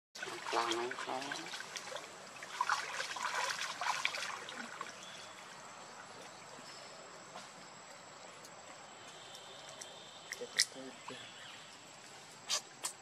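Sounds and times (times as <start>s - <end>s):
water splashing and trickling: 0.2s - 13.0s.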